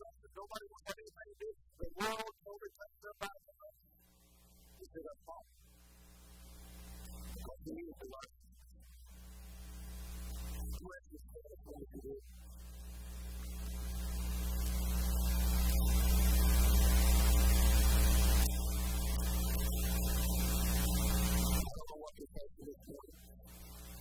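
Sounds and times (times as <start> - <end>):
electrical mains hum: 5.6 - 8.1, 8.9 - 21.8, 22.7 - 24.0.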